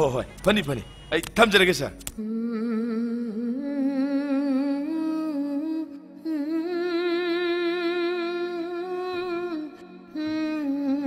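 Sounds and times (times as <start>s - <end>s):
person humming a slow melody: 2.2s - 11.0s.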